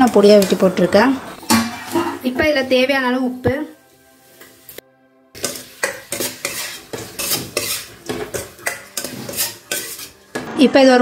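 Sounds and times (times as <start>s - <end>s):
spoon scraping metal pan: 0.0s - 2.4s, 5.4s - 10.6s.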